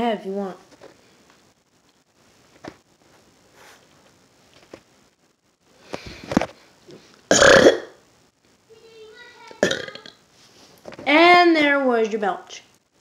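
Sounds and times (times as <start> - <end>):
person burping: 7.3 - 8.0, 9.6 - 10.2.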